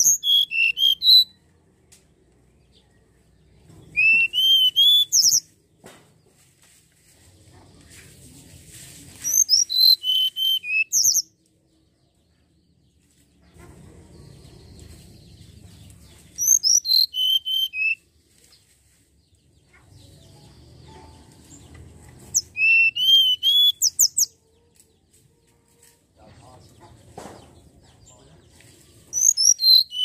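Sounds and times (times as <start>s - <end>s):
bird whistling song: 0.0s - 1.4s, 3.9s - 5.5s, 9.2s - 11.3s, 16.4s - 18.0s, 22.3s - 24.3s, 29.1s - 30.0s.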